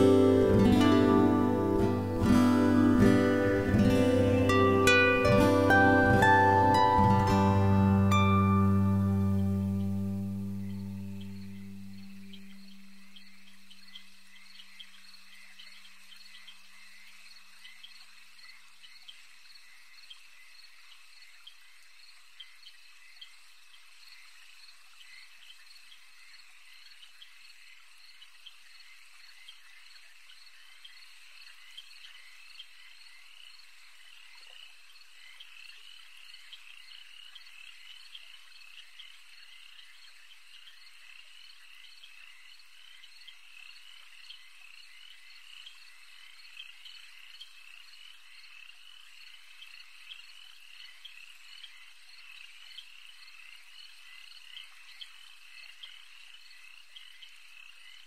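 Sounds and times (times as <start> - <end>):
frogs chirping: 0.0 - 58.0.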